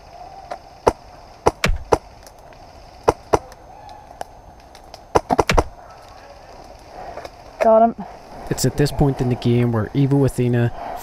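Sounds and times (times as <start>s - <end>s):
airsoft gunshots: 0.8s - 2.1s, 3.0s - 3.5s, 5.1s - 5.8s.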